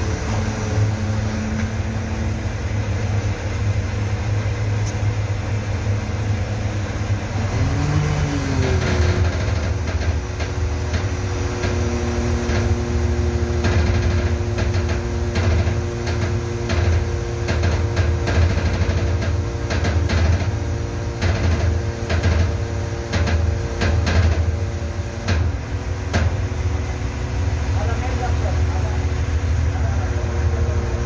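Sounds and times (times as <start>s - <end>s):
crane engine humming and whining: 0.0s - 31.0s
metal clanks and knocks: 13.6s - 26.5s.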